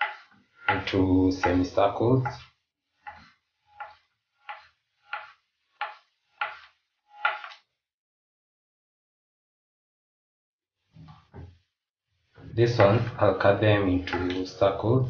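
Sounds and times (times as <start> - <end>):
knife slicing sausages on board: 3.1 - 7.5.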